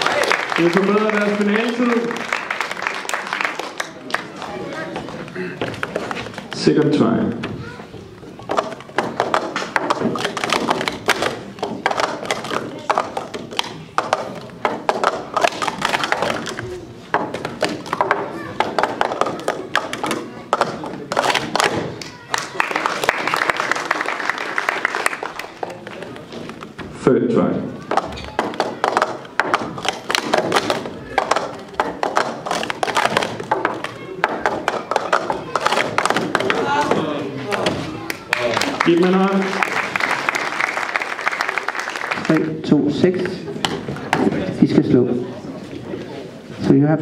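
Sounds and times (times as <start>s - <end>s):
plastic cups clicking and clacking: 4.2s - 7.4s, 8.2s - 22.2s, 27.8s - 40.0s.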